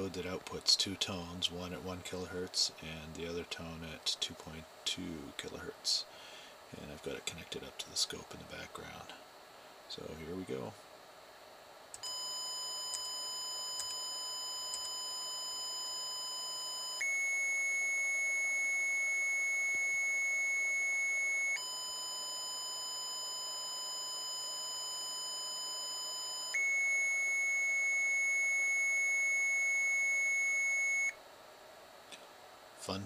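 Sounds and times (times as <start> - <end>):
buzzy square-wave beep: 12.1 - 31.2.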